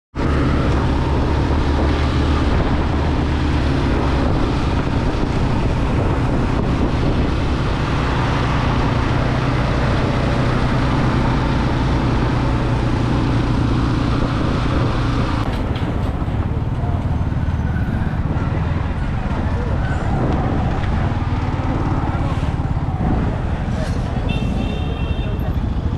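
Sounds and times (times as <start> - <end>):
motorcycle engine running: 0.2 - 23.7
wind on microphone: 0.2 - 24.3.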